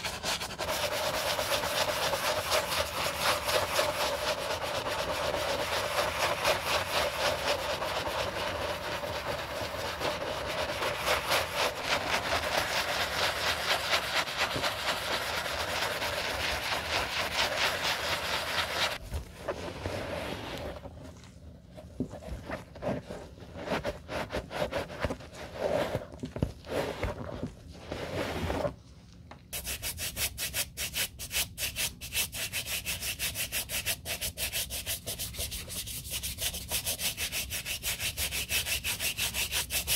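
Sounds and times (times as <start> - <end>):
shoe brush scrubbing: 0.0 - 19.0, 29.6 - 39.9
towel rubbing and wiping: 0.0 - 28.8.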